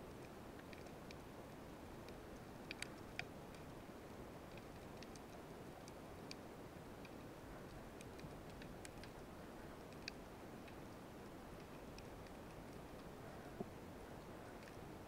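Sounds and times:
sharp underwater clicks: 0:02.0 - 0:03.8, 0:04.5 - 0:06.4, 0:07.0 - 0:09.3.

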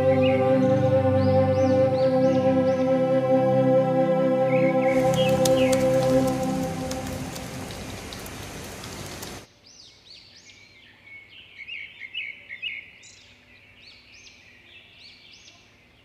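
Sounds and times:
steady rain-like hiss: 0:03.8 - 0:09.8
small birds chirping: 0:04.8 - 0:16.0.

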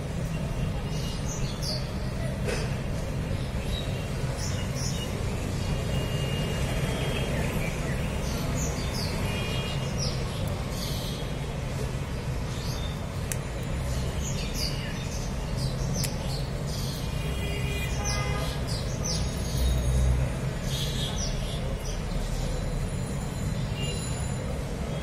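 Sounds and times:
small birds chirping: 0:00.2 - 0:25.0.

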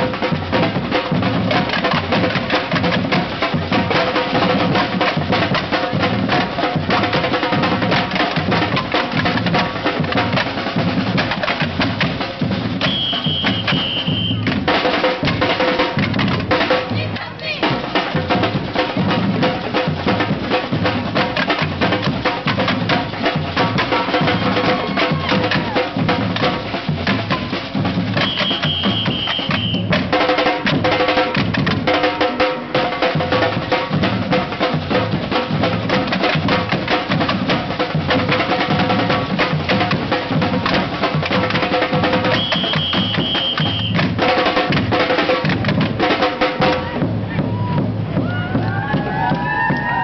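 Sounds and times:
drummers playing steady rhythm: 0:00.0 - 0:50.0
high held tone: 0:12.8 - 0:14.5, 0:28.2 - 0:29.9.

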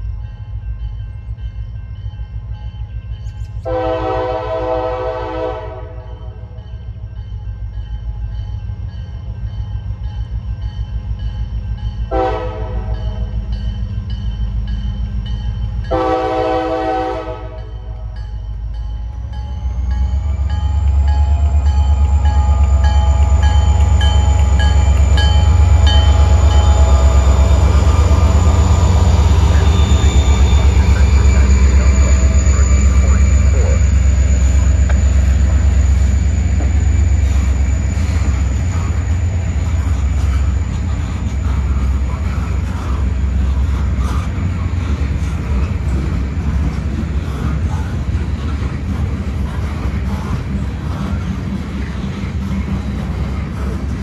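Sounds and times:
locomotive engine rumble: 0:00.0 - 0:54.0
locomotive horn blasts: 0:03.6 - 0:06.5, 0:12.1 - 0:13.3, 0:15.9 - 0:18.0.

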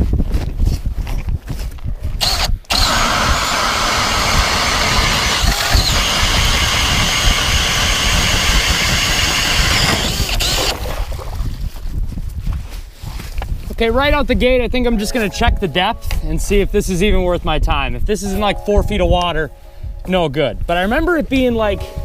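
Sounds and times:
drill boring through ice: 0:02.2 - 0:10.8.

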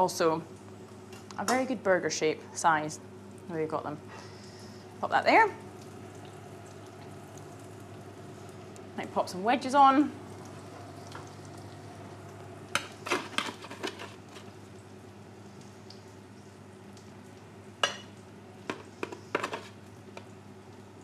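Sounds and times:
low hum: 0:03.0 - 0:15.6.

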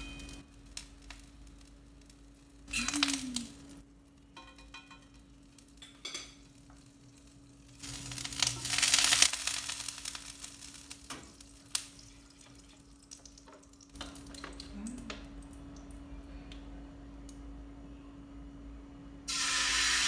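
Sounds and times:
food sizzling in a frying pan: 0:00.0 - 0:14.4, 0:19.3 - 0:20.0
low hum: 0:13.8 - 0:19.3.

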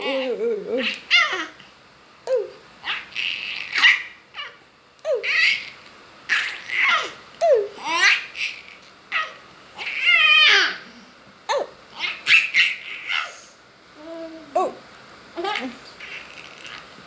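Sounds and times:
baby laughing: 0:00.0 - 0:01.6, 0:02.8 - 0:10.8, 0:15.4 - 0:16.9.

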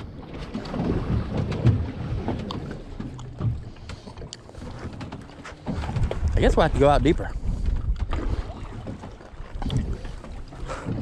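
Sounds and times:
water slapping boat hull: 0:00.0 - 0:11.0
wind buffeting microphone: 0:04.6 - 0:11.0.

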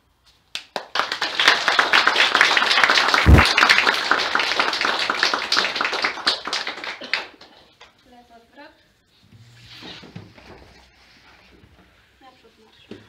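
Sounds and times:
audience applauding: 0:00.7 - 0:07.6.

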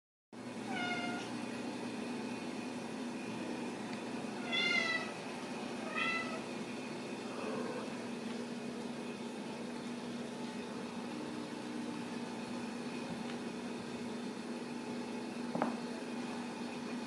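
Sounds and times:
steady low hum: 0:00.4 - 0:17.0
kitten meowing: 0:04.4 - 0:05.1, 0:05.8 - 0:06.5.

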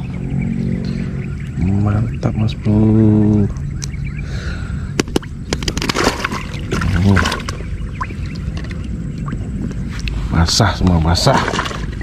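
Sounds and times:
low rumble: 0:00.0 - 0:12.0
fish slapping and splashing: 0:05.5 - 0:08.8.

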